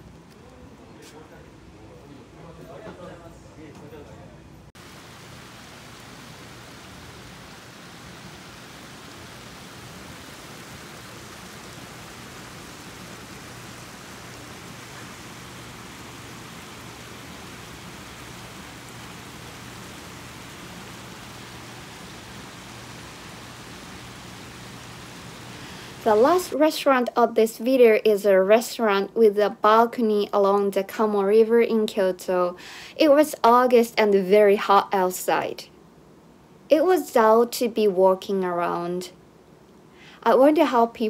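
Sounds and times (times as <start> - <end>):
river water flowing: 4.8 - 26.5.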